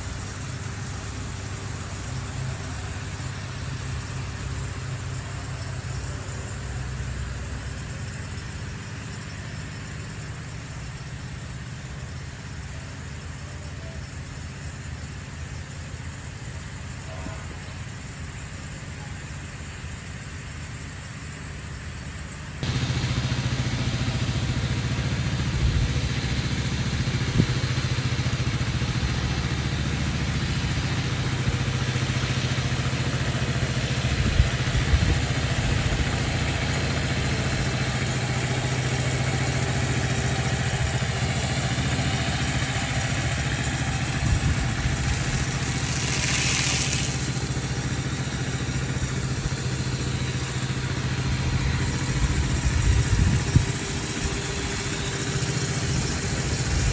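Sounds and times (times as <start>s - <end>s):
pump engine running: 0.0s - 56.9s
hiss of water spray: 22.6s - 56.9s.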